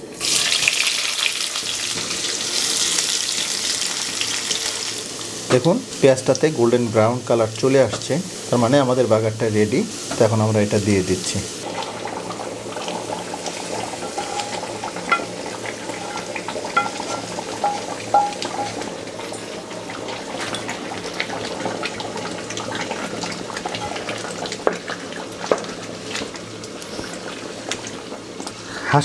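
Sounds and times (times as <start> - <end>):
hot oil hissing: 0.0 - 29.0
wooden spoon knocking pot: 16.0 - 18.9.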